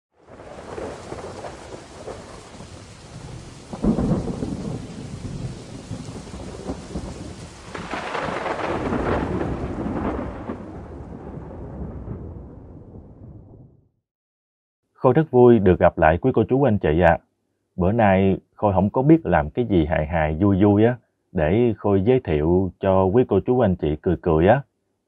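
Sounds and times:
steady rain: 0:00.2 - 0:12.6
thunder cracking and rumbling: 0:00.2 - 0:13.8.

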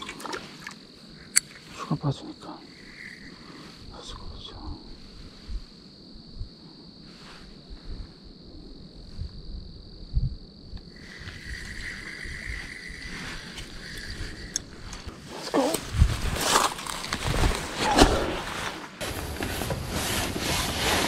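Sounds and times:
crickets trilling: 0:00.0 - 0:21.0
fishing reel whirring: 0:11.0 - 0:15.1.

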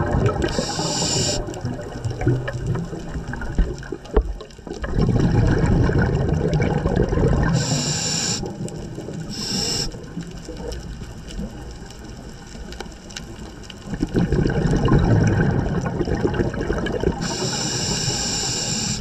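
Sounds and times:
exhaled bubbles underwater: 0:00.0 - 0:19.0
regulator air hisses: 0:00.5 - 0:01.5, 0:07.6 - 0:08.5, 0:09.3 - 0:10.0, 0:17.2 - 0:19.0.

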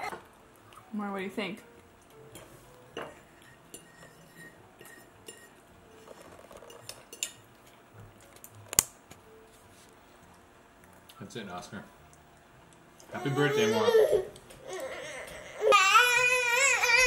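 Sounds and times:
fork clinking on a plate: 0:02.4 - 0:05.6, 0:06.6 - 0:07.4.

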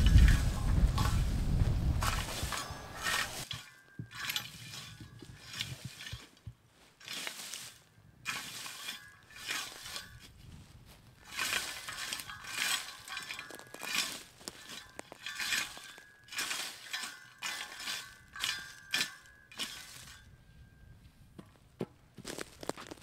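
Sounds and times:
rake scraping through wood chips: 0:00.0 - 0:20.3, 0:22.2 - 0:23.0.

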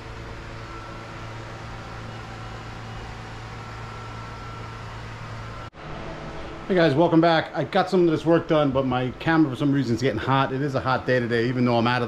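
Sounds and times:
faint high steady tone: 0:00.0 - 0:07.4
low mechanical hum: 0:00.0 - 0:12.0.

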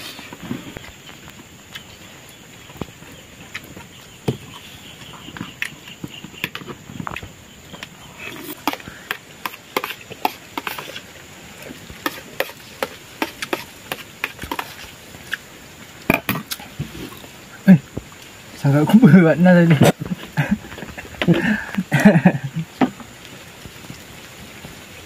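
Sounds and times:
metal spoon scraping plate: 0:09.5 - 0:11.0.

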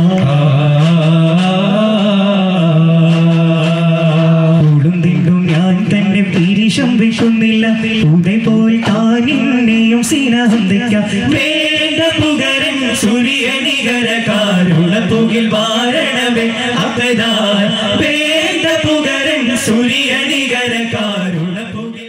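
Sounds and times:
frame drums: 0:00.0 - 0:22.0
men chanting together: 0:07.7 - 0:22.0.

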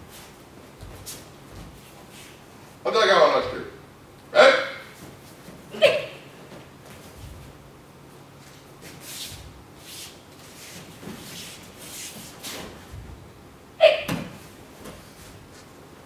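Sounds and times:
bare feet shuffling on mats: 0:00.0 - 0:02.8, 0:06.3 - 0:13.4, 0:14.2 - 0:15.9.

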